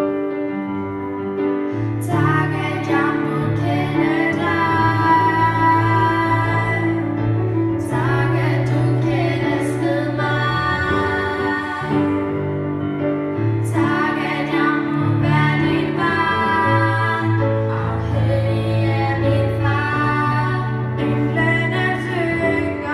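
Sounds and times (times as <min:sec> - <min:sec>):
girls singing a duet: 0:02.0 - 0:12.6, 0:13.4 - 0:22.9.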